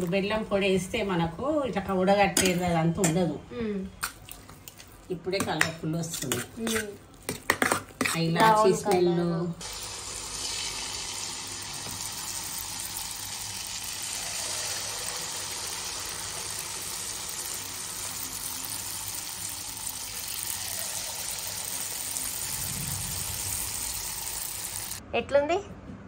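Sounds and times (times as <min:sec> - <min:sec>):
batter sizzling in hot oil: 0:09.6 - 0:25.0.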